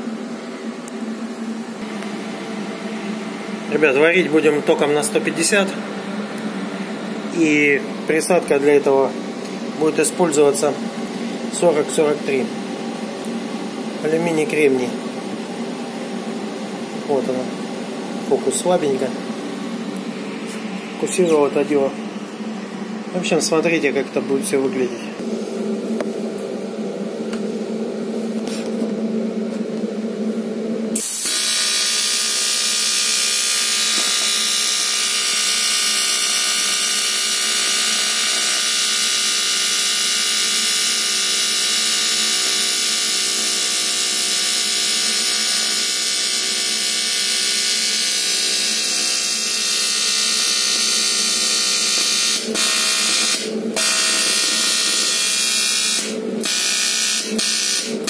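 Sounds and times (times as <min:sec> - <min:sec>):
welding arc buzzing: 0:30.9 - 0:58.0.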